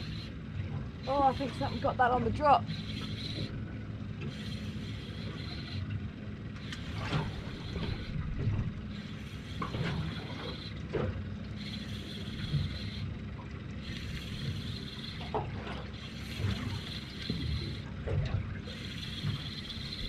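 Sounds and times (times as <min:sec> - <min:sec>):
fishing reel being wound: 0:00.0 - 0:00.4, 0:01.0 - 0:02.0, 0:02.6 - 0:03.6, 0:04.3 - 0:06.0, 0:06.6 - 0:08.2, 0:08.9 - 0:10.8, 0:11.5 - 0:13.1, 0:13.8 - 0:17.9, 0:18.7 - 0:20.0
outboard motor idling: 0:00.0 - 0:20.0.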